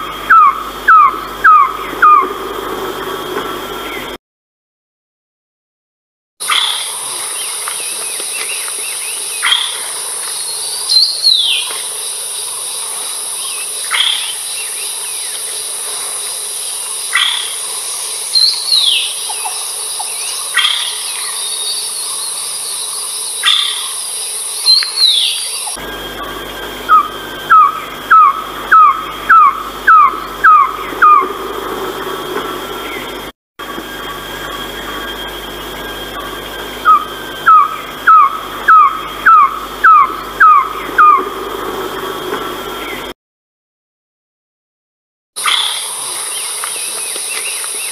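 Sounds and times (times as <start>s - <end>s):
bird calls sweeping downward: 0.0s - 2.4s, 24.6s - 33.2s, 34.0s - 43.1s
high insect drone: 0.0s - 4.2s, 6.4s - 43.1s, 45.4s - 47.9s.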